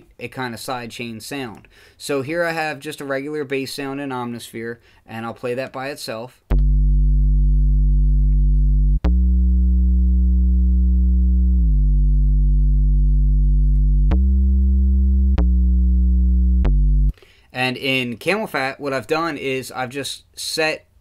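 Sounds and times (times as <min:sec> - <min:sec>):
synth bass low notes: 0:06.5 - 0:17.1.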